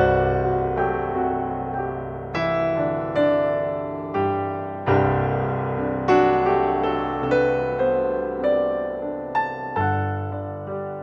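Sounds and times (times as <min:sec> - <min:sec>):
piano chords ringing: 0:00.0 - 0:11.0.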